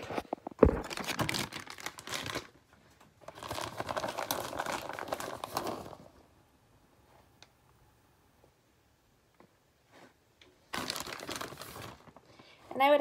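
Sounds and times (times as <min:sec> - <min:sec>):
plastic bag crinkling: 0:00.0 - 0:06.2, 0:10.6 - 0:12.4.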